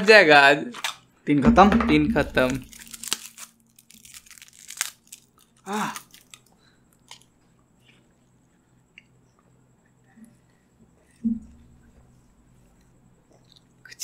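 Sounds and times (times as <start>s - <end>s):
plastic wrapper crinkling: 2.2s - 7.3s.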